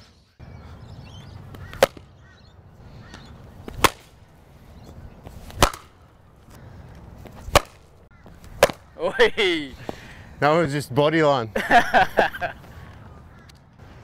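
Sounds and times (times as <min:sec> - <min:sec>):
cricket ball striking bat: 0:01.6 - 0:02.1, 0:03.7 - 0:04.1, 0:05.6 - 0:05.9, 0:07.5 - 0:07.8, 0:08.5 - 0:08.9.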